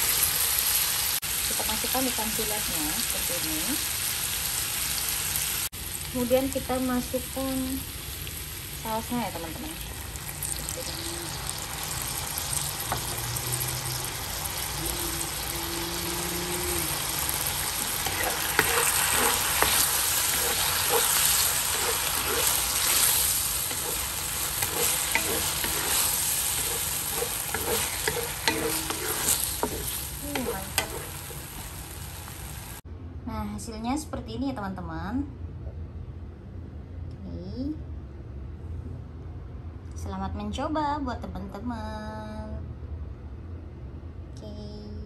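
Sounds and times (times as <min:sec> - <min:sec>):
sauce sizzling in a wok: 0:00.0 - 0:32.8
spatula knocking and scraping pan: 0:17.8 - 0:31.8.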